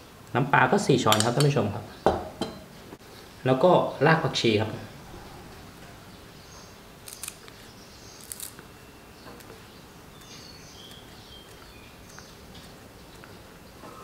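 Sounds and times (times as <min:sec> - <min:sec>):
scissors snipping: 0:07.0 - 0:07.6, 0:08.2 - 0:08.6.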